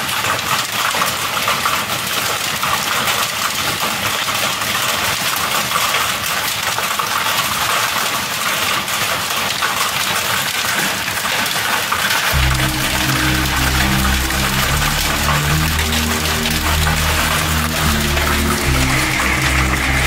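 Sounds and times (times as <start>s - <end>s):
hail and rain on metal roof: 0.0s - 15.0s.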